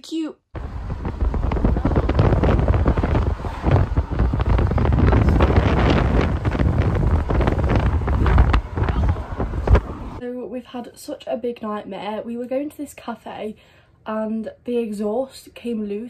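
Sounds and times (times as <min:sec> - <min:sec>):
wind buffeting microphone: 0:00.6 - 0:10.2.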